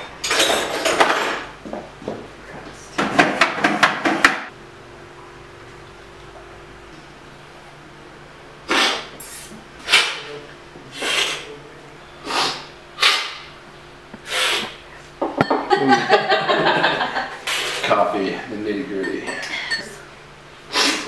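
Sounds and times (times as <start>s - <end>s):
loud hissing slurps: 8.7s - 10.3s, 10.9s - 11.5s, 12.2s - 13.3s, 14.2s - 14.8s.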